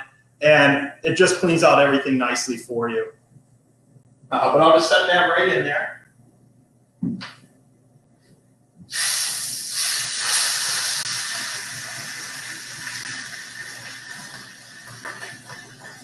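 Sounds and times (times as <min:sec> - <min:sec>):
fish sizzling in a skillet: 0:08.9 - 0:16.0.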